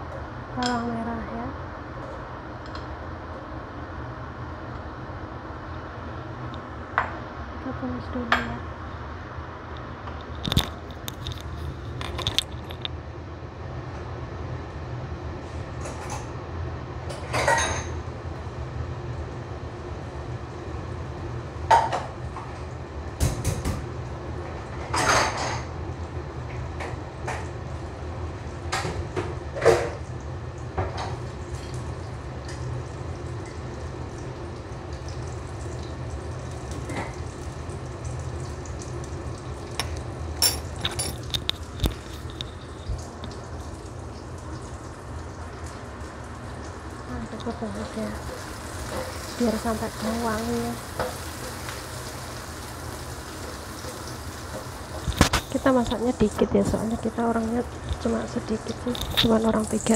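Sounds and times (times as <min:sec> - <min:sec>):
steady low hum: 0:00.0 - 0:51.5, 0:53.4 - 0:59.9
frying in hot oil: 0:00.0 - 0:59.9
oil crackling and popping: 0:30.0 - 0:59.9.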